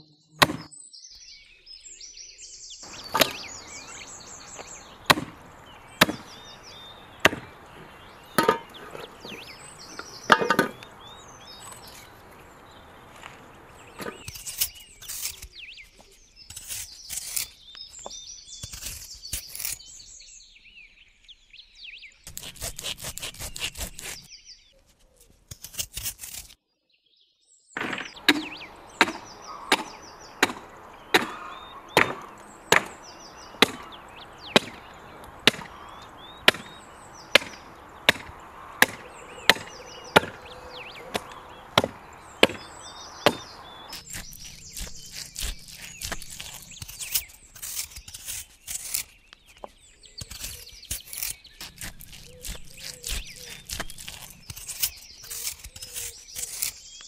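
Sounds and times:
birds chirping faintly: 0:00.0 - 0:57.0
chopping into meat carcass: 0:00.4 - 0:00.7, 0:03.0 - 0:03.5, 0:05.0 - 0:05.4, 0:06.0 - 0:06.3, 0:07.2 - 0:07.6, 0:27.8 - 0:34.8, 0:35.4 - 0:35.8, 0:36.4 - 0:40.5, 0:41.1 - 0:46.6
knife cuts and scrapes: 0:13.2 - 0:20.0, 0:22.3 - 0:26.6, 0:37.4 - 0:57.0.

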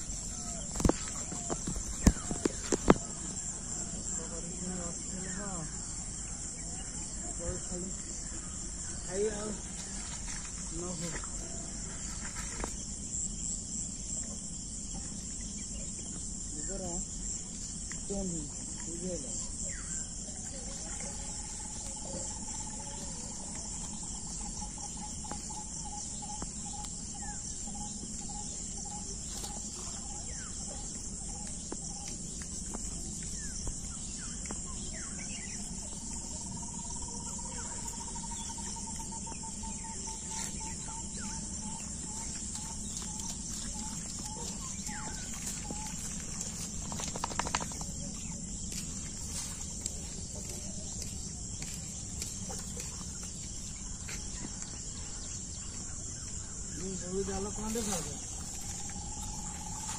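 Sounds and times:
bird calling: 0:00.0 - 0:04.2, 0:19.4 - 0:59.9
crickets chirping: 0:00.0 - 0:59.9
patter of clicks: 0:00.2 - 0:03.2, 0:17.7 - 0:18.1, 0:28.1 - 0:34.8, 0:42.2 - 0:53.6.

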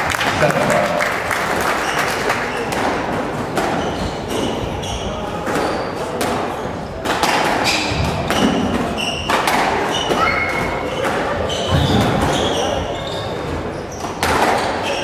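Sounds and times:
shoes squeaking on hardwood: 0:03.7 - 0:06.0, 0:07.6 - 0:15.0
squash ball smacks: 0:05.4 - 0:12.4.

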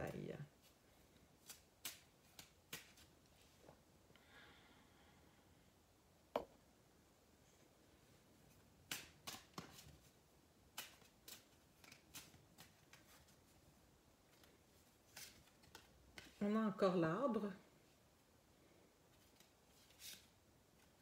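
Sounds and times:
cards being shuffled: 0:00.6 - 0:03.4, 0:08.8 - 0:13.6, 0:14.2 - 0:16.4, 0:19.1 - 0:21.0.

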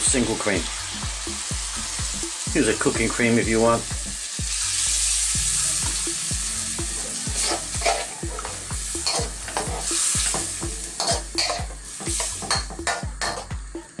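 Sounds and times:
sauce sizzling in a wok: 0:00.0 - 0:13.9
metal spoon scraping a pan: 0:07.4 - 0:10.4.

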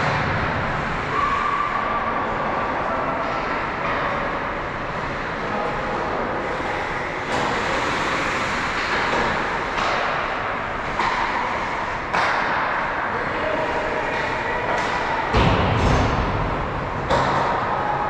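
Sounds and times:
skates scraping ice: 0:03.4 - 0:12.9.

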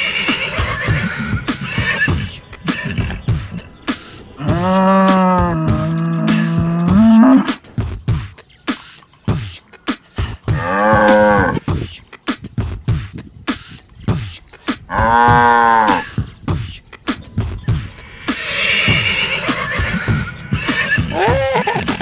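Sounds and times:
cow mooing: 0:04.4 - 0:07.6, 0:10.5 - 0:11.6, 0:14.9 - 0:16.1.

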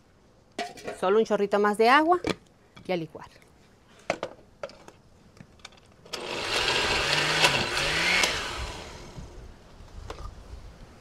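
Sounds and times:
blender running: 0:06.1 - 0:09.4.

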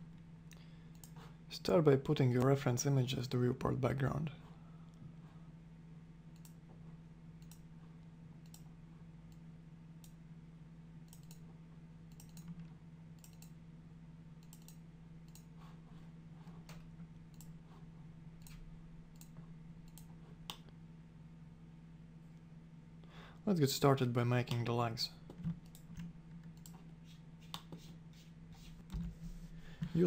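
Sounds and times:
low electrical hum: 0:00.0 - 0:30.0
computer mouse clicks: 0:00.5 - 0:01.3, 0:06.3 - 0:06.6, 0:07.4 - 0:07.7, 0:08.4 - 0:08.7, 0:11.0 - 0:11.5, 0:12.1 - 0:13.6, 0:14.4 - 0:15.6, 0:16.6 - 0:17.6, 0:18.4 - 0:20.8, 0:25.3 - 0:26.8.

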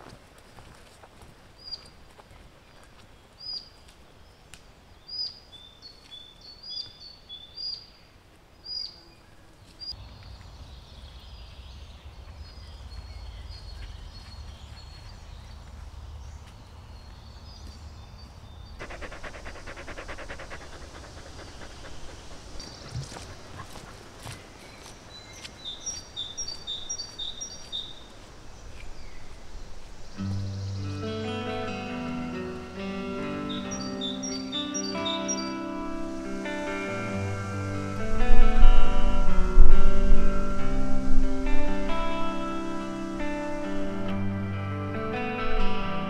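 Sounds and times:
songbirds chirping: 0:00.3 - 0:46.0
dog panting: 0:18.8 - 0:24.7.

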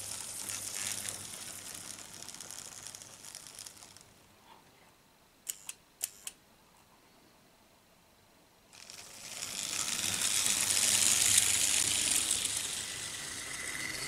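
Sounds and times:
sharp clicks: 0:05.4 - 0:06.4
model train wheels clattering on rails: 0:08.8 - 0:14.0.

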